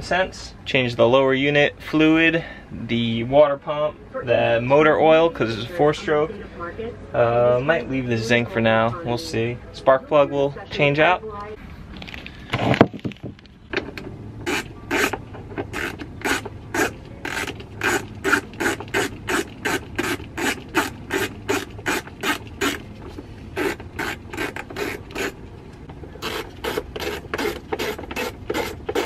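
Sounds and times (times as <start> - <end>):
ratchet wrench clicking: 14.5 - 22.8.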